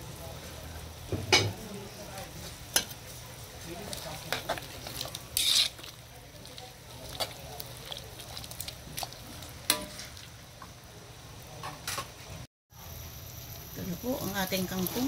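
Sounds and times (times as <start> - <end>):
spatula scraping a wok: 1.5 - 10.3.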